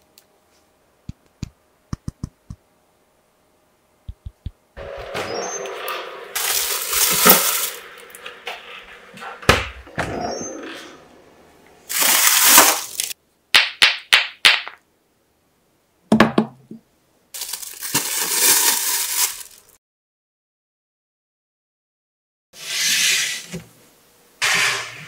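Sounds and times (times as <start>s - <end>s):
plastic bag crinkling: 6.4s - 8.2s, 11.9s - 13.2s, 17.4s - 19.8s.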